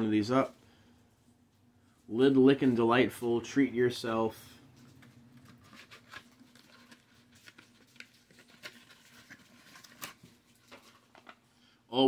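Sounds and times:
cardboard and plastic cups crinkling: 4.8s - 11.5s.

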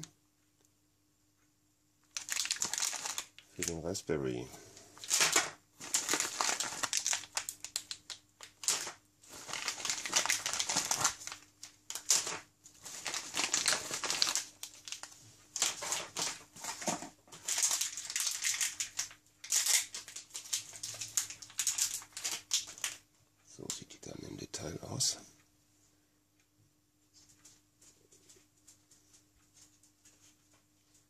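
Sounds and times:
plastic and paper packaging crinkling: 2.0s - 4.0s, 4.8s - 23.0s.

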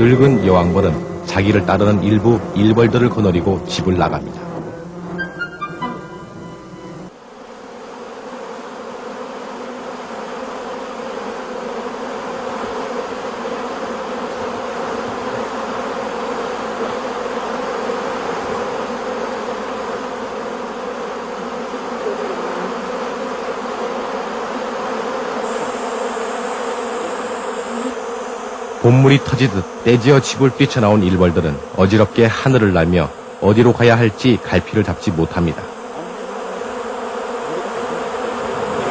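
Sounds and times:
bee swarm buzzing: 0.0s - 38.9s.

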